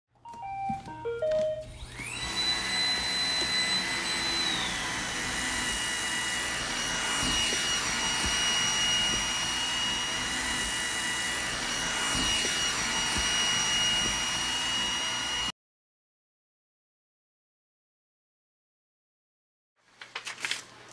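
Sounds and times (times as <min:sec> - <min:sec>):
robot vacuum motor whine: 0:01.6 - 0:15.5.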